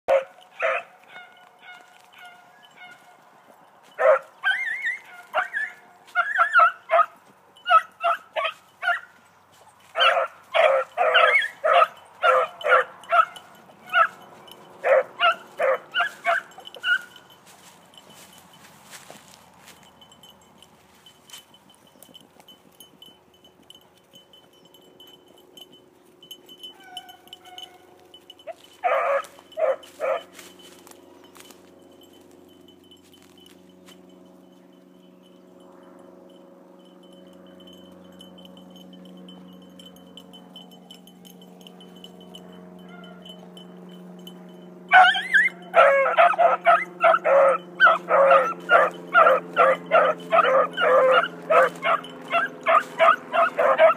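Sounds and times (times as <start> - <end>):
dogs barking: 0.1 - 3.2, 3.9 - 9.2, 9.8 - 17.4, 26.6 - 31.5, 42.8 - 43.5, 44.9 - 53.9.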